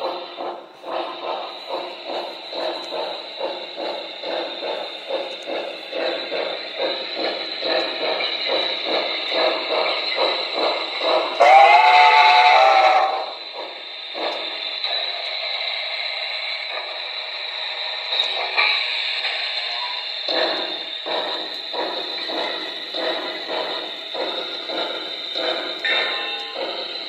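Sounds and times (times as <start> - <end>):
model locomotive chugging: 0.0 - 27.0.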